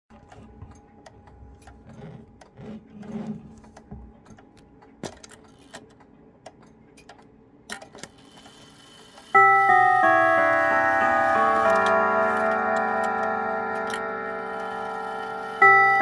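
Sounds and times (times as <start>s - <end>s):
clock clicks and ticks: 9.3s - 16.0s.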